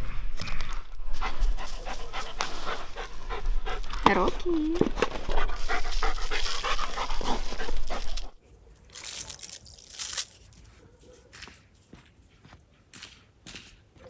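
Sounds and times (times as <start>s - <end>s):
crackly rustles: 0.0s - 11.1s
dog panting: 1.1s - 4.4s, 5.0s - 8.4s.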